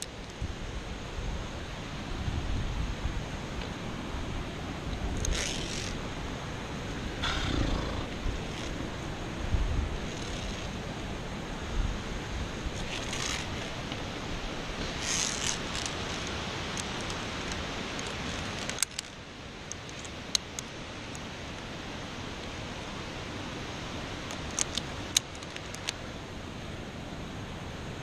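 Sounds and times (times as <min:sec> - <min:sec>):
wind hiss on microphone: 0:00.0 - 0:28.0
carabiner clicking on steel cable: 0:05.1 - 0:06.0, 0:10.1 - 0:10.8, 0:12.8 - 0:13.7, 0:14.9 - 0:21.2, 0:24.3 - 0:26.0.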